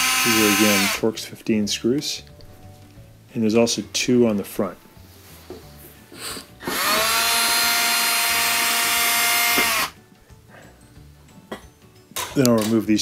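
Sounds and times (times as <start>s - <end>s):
cordless drill motor whining: 0.0s - 1.0s, 6.6s - 10.0s.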